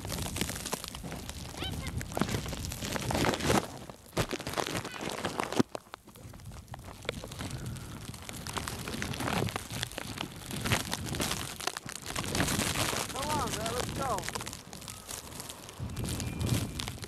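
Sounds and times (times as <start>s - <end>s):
footsteps crunching in snow: 0.0s - 17.0s
steady rustling hiss: 5.4s - 17.0s
sharp crack: 8.4s - 17.0s.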